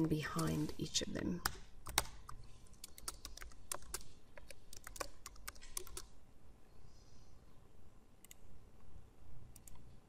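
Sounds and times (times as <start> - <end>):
typing on computer keyboard: 1.4 - 6.2.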